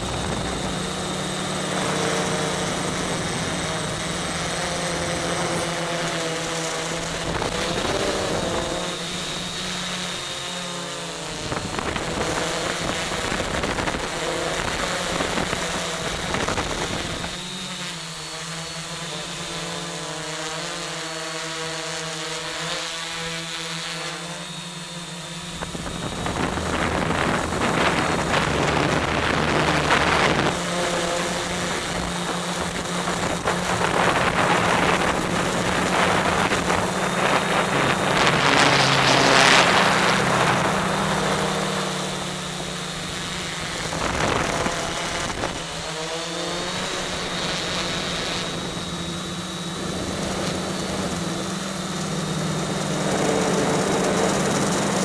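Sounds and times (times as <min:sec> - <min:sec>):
wind noise: 0:00.0 - 0:06.1, 0:11.3 - 0:17.6, 0:25.3 - 0:55.0
drone motors whining: 0:00.0 - 0:55.0.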